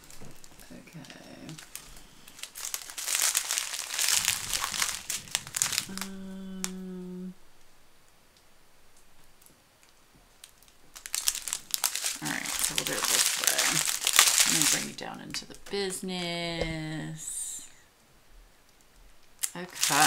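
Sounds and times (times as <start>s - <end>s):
plastic bags crinkling: 0.0s - 6.8s, 10.4s - 17.2s, 19.3s - 20.0s
steady low hum: 3.5s - 9.4s.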